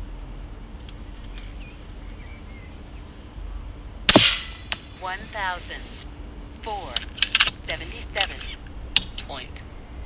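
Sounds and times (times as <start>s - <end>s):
air rifle shot: 4.1s - 5.0s.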